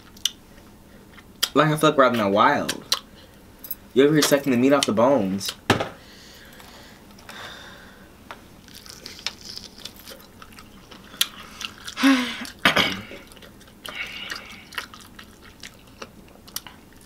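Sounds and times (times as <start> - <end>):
chewing and smacking: 8.6 - 17.0.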